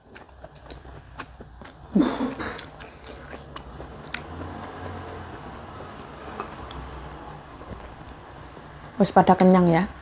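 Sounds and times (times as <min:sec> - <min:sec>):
person chewing food: 0:00.0 - 0:09.0.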